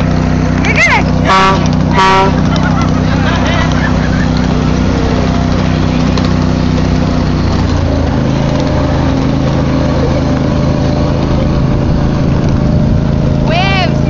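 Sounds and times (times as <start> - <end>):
miniature train engine running: 0.0 - 10.5.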